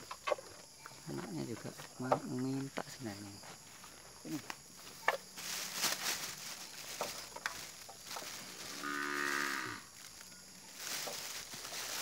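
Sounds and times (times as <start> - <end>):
cow mooing: 8.7 - 9.9.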